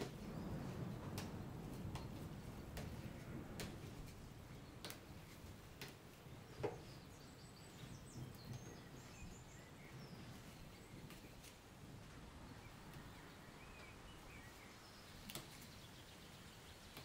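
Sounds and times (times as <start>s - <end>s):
leaf stalks snapping: 3.5s - 4.2s, 4.8s - 6.0s, 15.2s - 15.7s
faint bird chirps: 12.4s - 17.0s.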